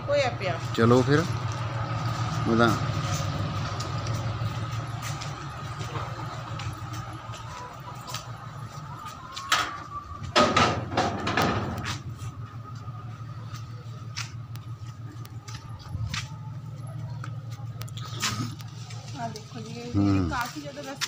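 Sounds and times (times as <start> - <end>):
steady low hum: 10.1 - 20.5.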